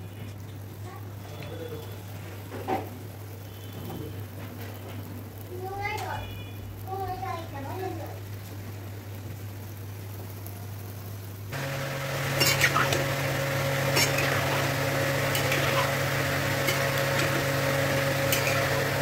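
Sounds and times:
fritters sizzling in oil: 0.0 - 19.0
steady hum: 6.3 - 19.0
metal spoon clinking on pan: 18.3 - 18.7.

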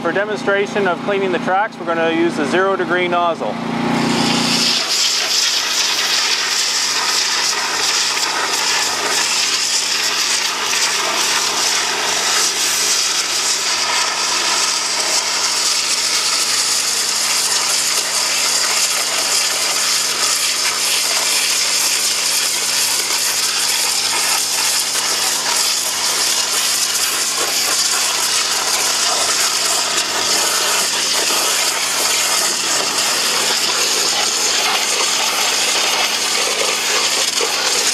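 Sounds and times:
pressure washer jet hissing: 0.0 - 37.9.

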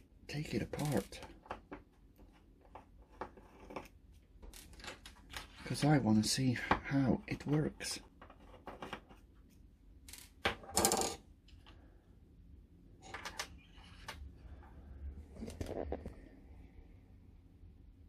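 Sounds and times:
small plastic parts clicking and rattling: 0.5 - 5.9.

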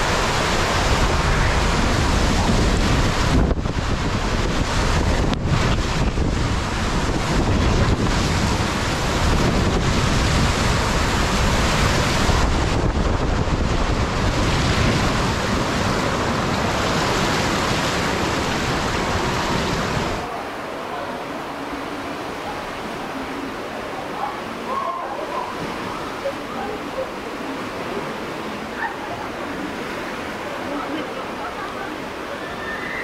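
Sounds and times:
wind noise on microphone: 0.0 - 20.3
water rushing and spraying: 0.0 - 33.0.

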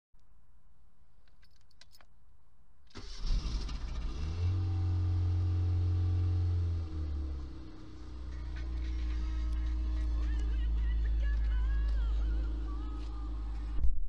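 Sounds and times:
car engine idling: 2.9 - 13.8.

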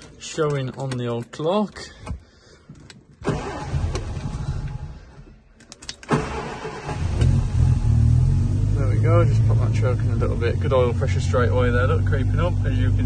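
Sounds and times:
engine starter cranking: 3.2 - 7.6
car engine running: 7.1 - 13.0.

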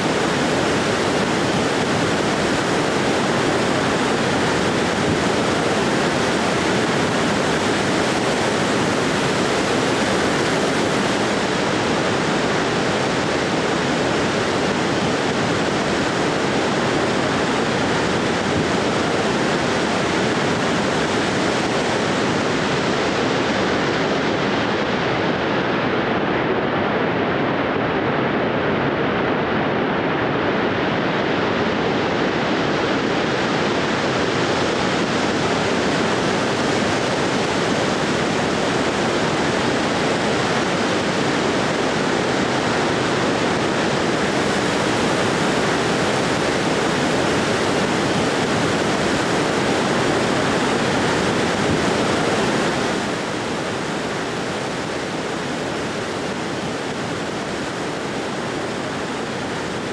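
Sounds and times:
steady rushing noise: 0.0 - 59.9.

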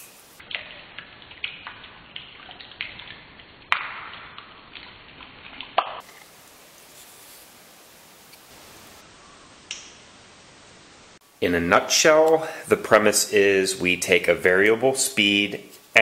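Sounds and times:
faint hiss: 0.0 - 0.4, 6.0 - 16.0
sharp loud clicks: 9.7 - 10.0.

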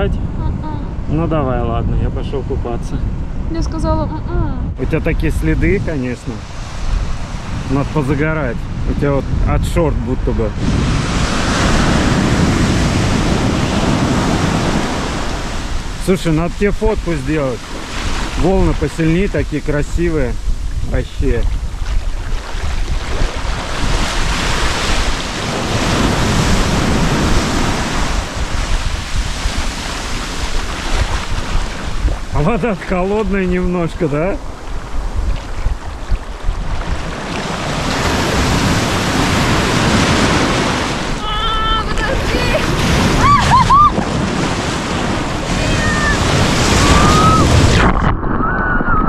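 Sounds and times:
small waves breaking on sand: 10.5 - 47.9
water splashing: 10.9 - 49.0.

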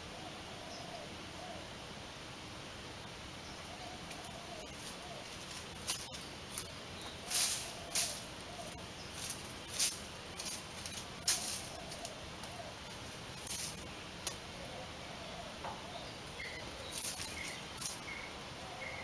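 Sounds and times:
rabbit scratching in sand: 4.7 - 13.8, 16.7 - 18.2.

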